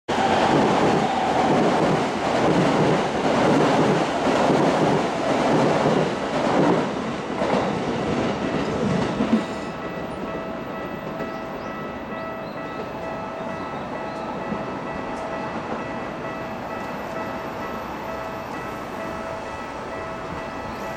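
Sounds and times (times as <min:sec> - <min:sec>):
train wheels clattering over rails: 0:00.1 - 0:13.2
rail yard rumble: 0:00.1 - 0:20.9.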